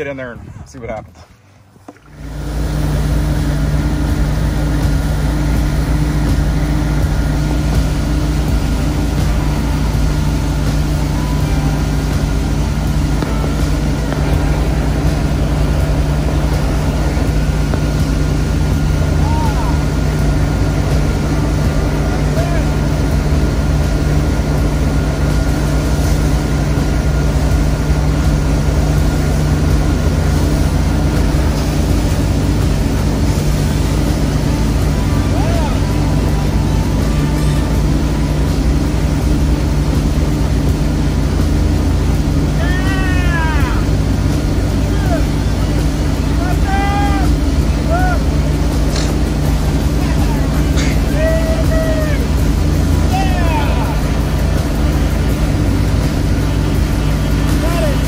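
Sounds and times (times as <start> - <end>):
boat engine drone: 0.0 - 58.0
churning wake water: 0.0 - 58.0.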